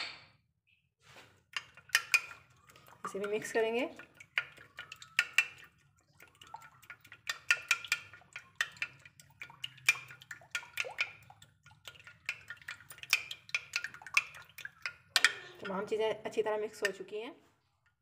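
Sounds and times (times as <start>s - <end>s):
spoon clinking against glass dish: 1.6s - 3.4s, 4.3s - 5.7s, 7.0s - 11.3s, 12.3s - 15.8s.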